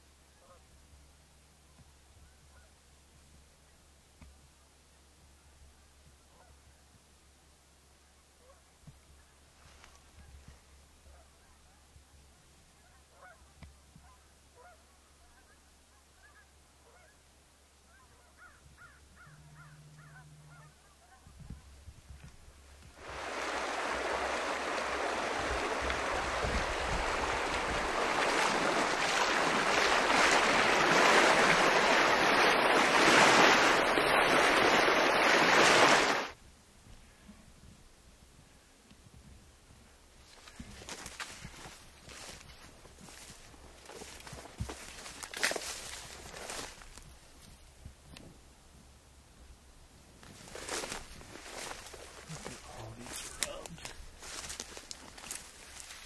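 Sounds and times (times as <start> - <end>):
faint bird calls: 17.9 - 21.3
water splashing around wading legs: 23.0 - 36.4.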